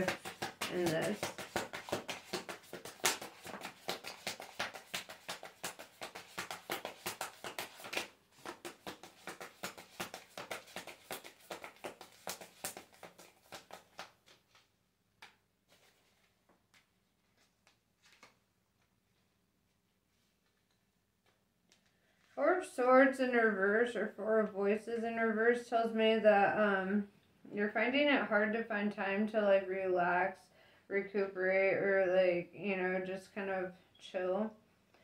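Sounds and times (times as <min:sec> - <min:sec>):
cards being shuffled: 0:00.0 - 0:19.2.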